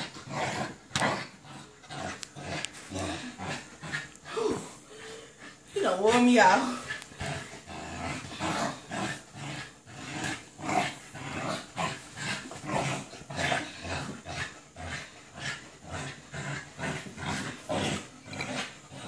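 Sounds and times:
puppy play-growling: 0:00.0 - 0:19.0.

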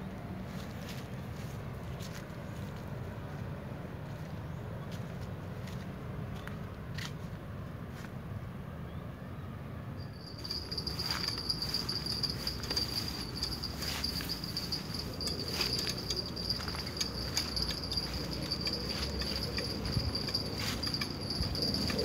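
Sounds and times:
high-pitched insect drone: 0:10.0 - 0:22.0
low steady rumble: 0:10.0 - 0:22.0.

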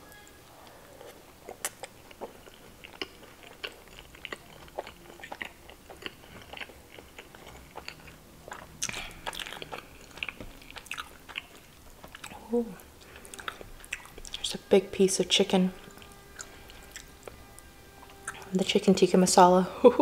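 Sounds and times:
crisp crackles of chewing: 0:01.0 - 0:14.5, 0:15.8 - 0:17.4
close chewing mouth clicks: 0:01.4 - 0:12.4, 0:13.0 - 0:14.4.

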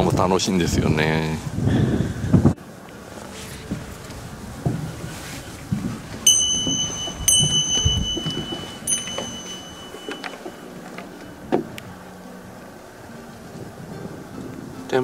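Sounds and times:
footsteps on wooden decking: 0:02.9 - 0:11.9
small metal bell ringing: 0:06.3 - 0:11.4.

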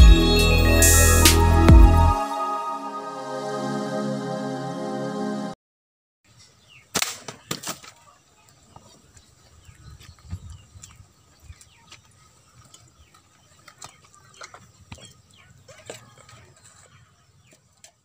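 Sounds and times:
small birds chirping: 0:06.4 - 0:17.9.

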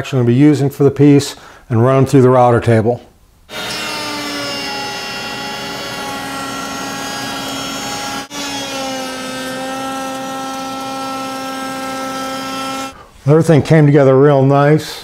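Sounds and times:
router cutting wood: 0:03.5 - 0:13.0.

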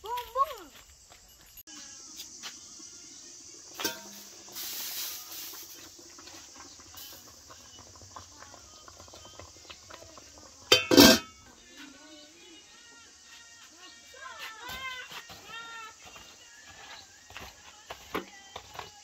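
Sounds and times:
metal lid clattering on pot: 0:03.8 - 0:04.3, 0:10.7 - 0:11.4
pot lid clink: 0:03.8 - 0:04.3, 0:10.7 - 0:11.4.

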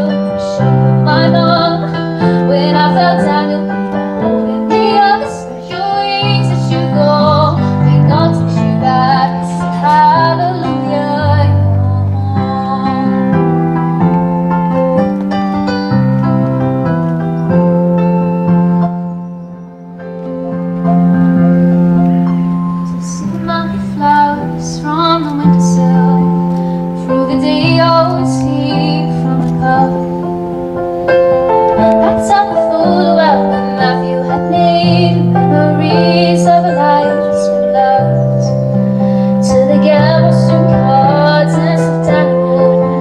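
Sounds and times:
woman singing: 0:00.0 - 0:14.2, 0:22.9 - 0:30.5, 0:31.6 - 0:43.0
keyboard chords: 0:00.0 - 0:43.0.

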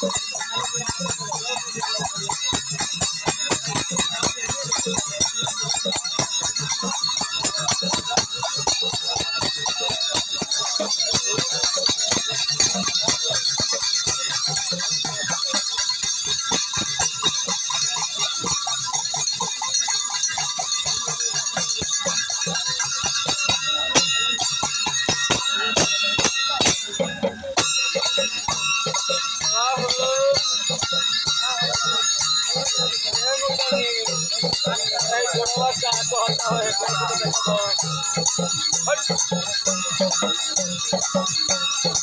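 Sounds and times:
hand cymbals jingling: 0:00.0 - 0:42.0.

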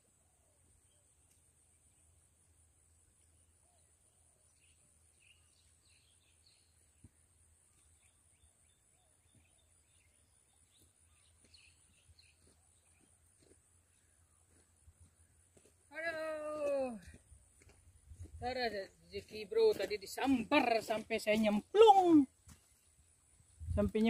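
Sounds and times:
insect drone: 0:00.0 - 0:19.3
small bird chirps: 0:03.3 - 0:13.2.

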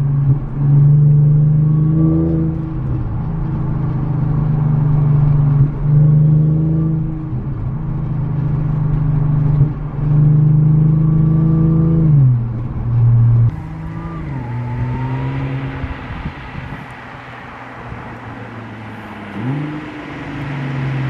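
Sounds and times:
car engine revving hard: 0:13.2 - 0:21.0.

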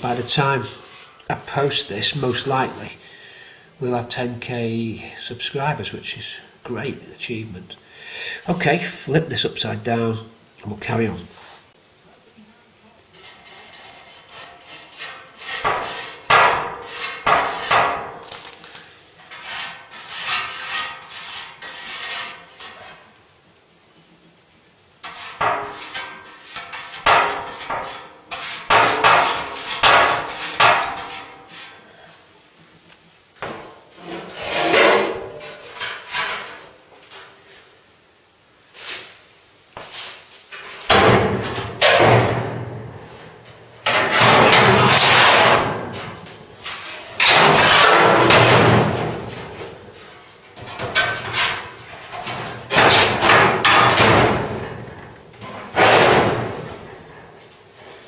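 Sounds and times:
sheet steel panel knocking and scraping: 0:13.2 - 0:18.3, 0:19.2 - 0:23.0, 0:25.0 - 0:31.8, 0:40.5 - 0:43.0, 0:43.8 - 0:49.8, 0:50.6 - 0:56.9
loud metal bangs: 0:40.9 - 0:42.9, 0:47.2 - 0:49.4, 0:52.3 - 0:54.8, 0:55.7 - 0:56.8.

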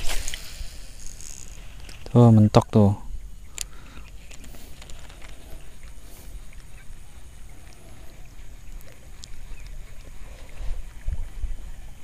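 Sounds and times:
faint ticks: 0:03.4 - 0:11.4
wind buffeting microphone: 0:04.4 - 0:12.0.

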